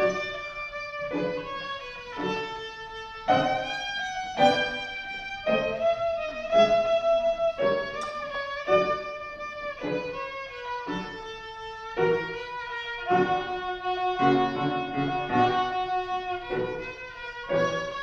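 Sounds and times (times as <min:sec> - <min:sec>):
piano accompaniment: 0:00.0 - 0:18.0
violin playing slow melody: 0:00.0 - 0:18.0.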